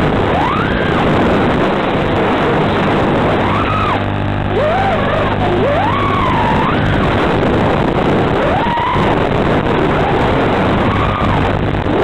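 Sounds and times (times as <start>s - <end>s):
drone motors whining: 0.0s - 12.0s.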